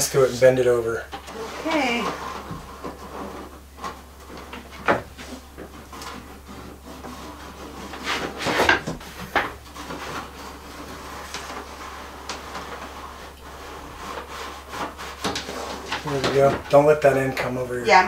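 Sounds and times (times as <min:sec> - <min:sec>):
fish tape scraping against wood: 0:00.0 - 0:17.6.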